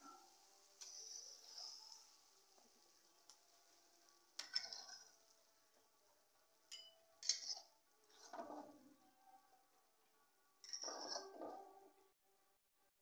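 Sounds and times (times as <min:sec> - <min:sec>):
metal spatula scraping pan: 0:00.0 - 0:02.2, 0:04.4 - 0:05.2, 0:10.6 - 0:11.7.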